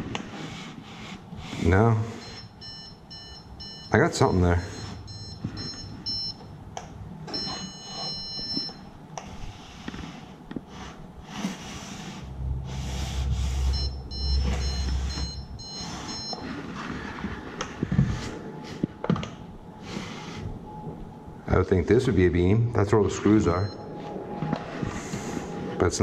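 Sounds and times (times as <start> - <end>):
stud finder beeping: 2.2 - 6.5, 7.3 - 8.9, 13.7 - 16.9.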